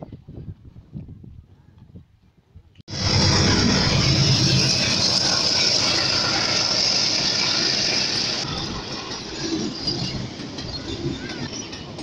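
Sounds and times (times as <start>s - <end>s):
diesel locomotive engine: 2.9s - 12.0s.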